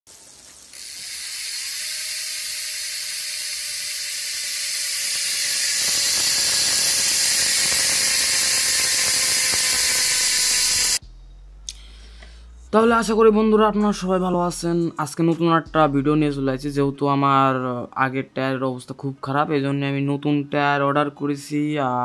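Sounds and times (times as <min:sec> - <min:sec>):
bicycle freehub ratcheting buzz: 0:00.2 - 0:11.0.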